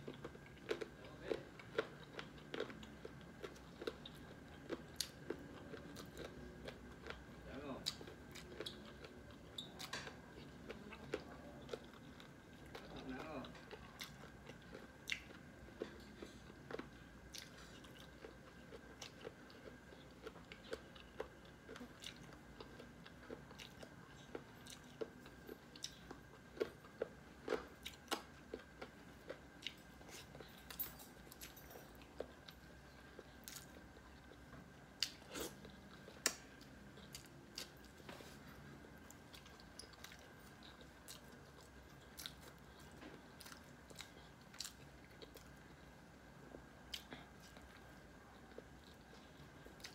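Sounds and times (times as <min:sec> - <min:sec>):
faint high tone hum: 0:00.0 - 0:49.9
person chewing food: 0:00.0 - 0:49.9.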